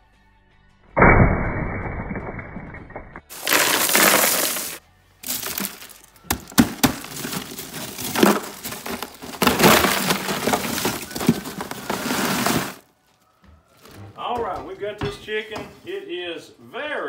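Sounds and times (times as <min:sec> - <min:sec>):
crushed ice crunching and clinking: 0:03.3 - 0:12.8.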